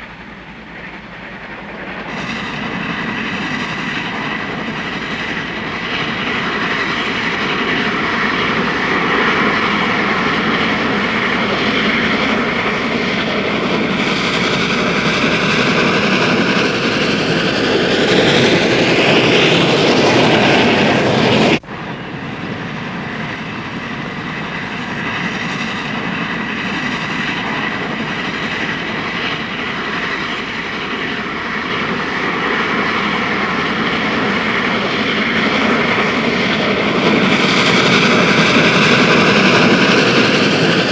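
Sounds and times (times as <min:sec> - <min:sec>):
steam locomotive running: 0:00.0 - 0:40.9.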